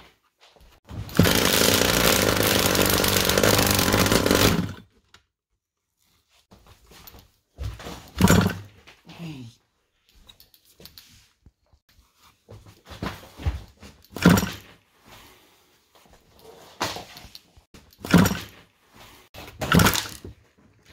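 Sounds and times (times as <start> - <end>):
motorcycle engine being kick-started: 0.9 - 4.8, 14.2 - 14.7, 18.0 - 18.6, 19.6 - 20.2.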